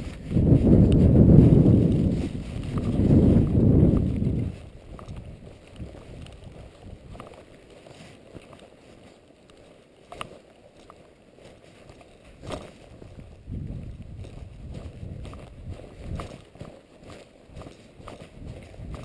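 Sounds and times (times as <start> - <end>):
wind and rain on microphone: 0.0 - 8.0, 12.2 - 16.7, 17.5 - 19.0.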